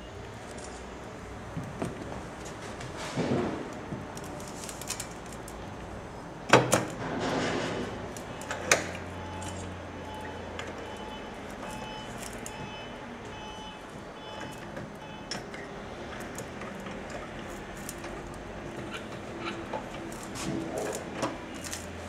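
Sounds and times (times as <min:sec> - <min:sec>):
faint short beeps: 0:09.1 - 0:15.3.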